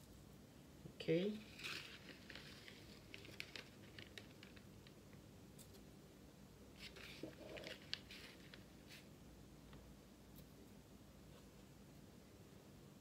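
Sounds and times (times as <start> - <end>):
plastic bag rustling: 1.4 - 5.0, 6.8 - 9.1.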